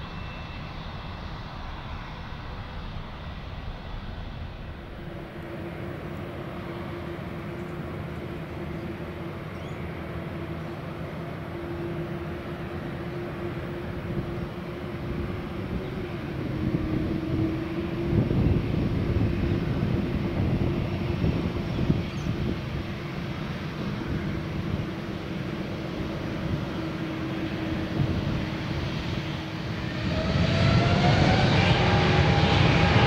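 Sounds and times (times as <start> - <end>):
jet engines humming and whining: 0.0 - 33.0
gusty low rumble: 13.7 - 33.0.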